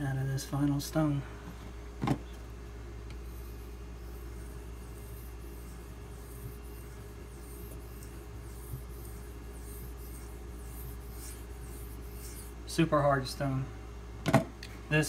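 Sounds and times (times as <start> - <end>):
knife scraping on whetstone: 3.2 - 12.6.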